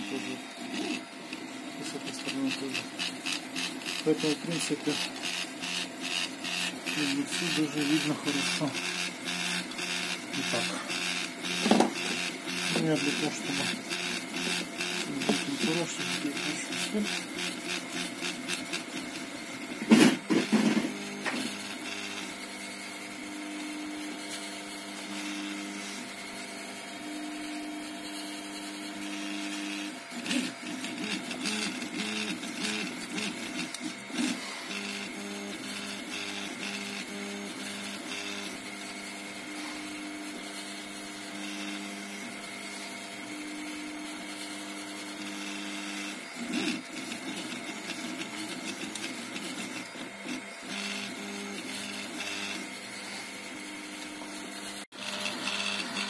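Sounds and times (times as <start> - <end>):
stepper motors whining: 0.0 - 56.0.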